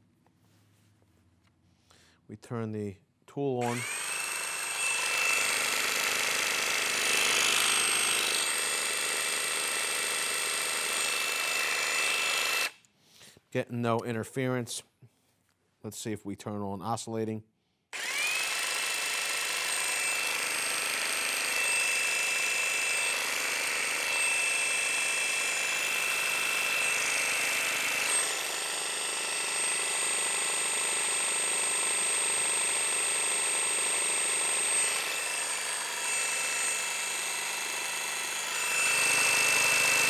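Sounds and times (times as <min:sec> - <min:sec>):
jigsaw running high whine: 0:03.6 - 0:12.8, 0:18.0 - 0:40.0.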